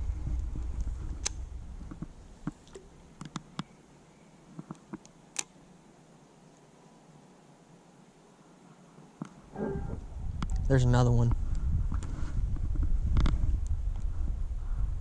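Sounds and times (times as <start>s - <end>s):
low rumble: 0.0s - 3.1s, 9.5s - 15.0s.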